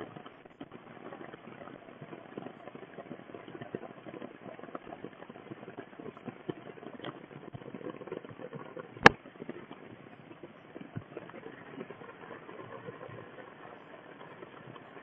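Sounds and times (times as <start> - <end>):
rain on leaves and ground: 0.0 - 15.0
sharp click: 9.0 - 9.2.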